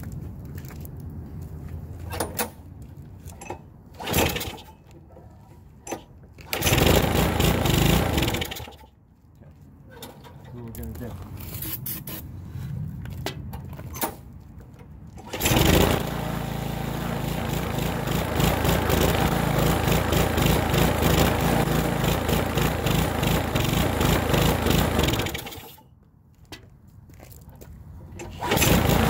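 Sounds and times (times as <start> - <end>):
lawn mower engine running: 6.5 - 8.7, 15.2 - 25.8, 28.4 - 29.0.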